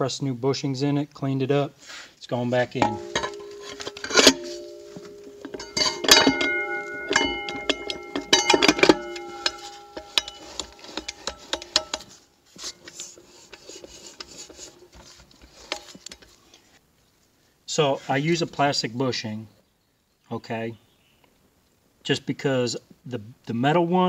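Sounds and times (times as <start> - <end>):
light metal clicks and taps: 2.8 - 12.2
metal parts clanking and ringing: 2.8 - 13.1.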